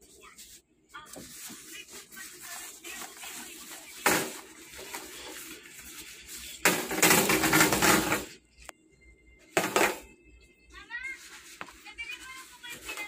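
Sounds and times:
rubbing and clattering: 1.2s - 8.4s.

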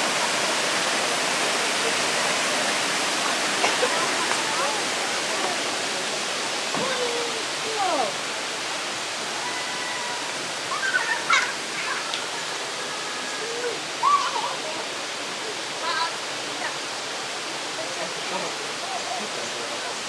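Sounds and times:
waterfall rushing: 0.0s - 20.0s
distant voices and calls: 3.0s - 17.3s.

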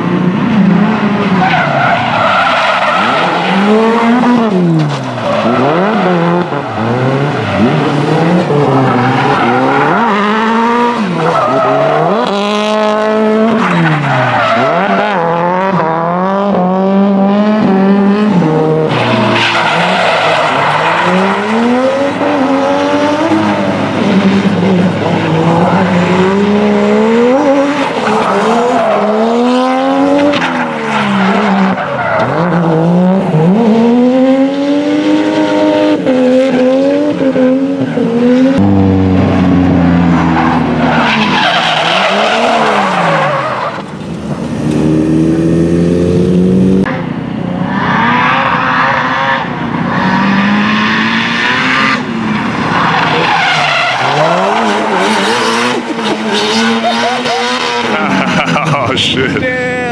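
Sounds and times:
car engine revving: 0.0s - 59.9s
tyres squealing and skidding: 1.1s - 12.8s, 13.4s - 15.4s, 18.4s - 32.9s, 40.0s - 44.1s, 47.7s - 50.6s, 51.8s - 59.9s.

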